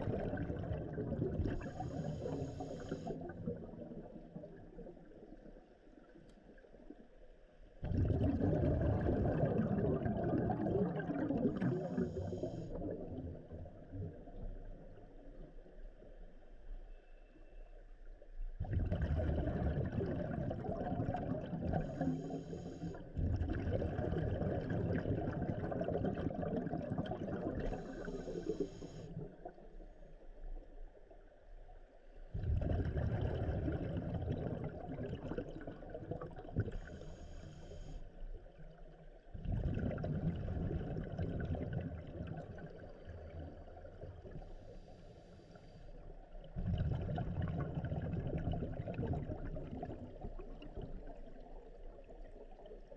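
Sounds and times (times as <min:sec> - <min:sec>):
exhaled bubbles gurgling: 0:00.0 - 0:06.8, 0:07.8 - 0:15.6, 0:18.6 - 0:30.7, 0:32.2 - 0:52.9
regulator inhalation hiss: 0:01.8 - 0:03.1.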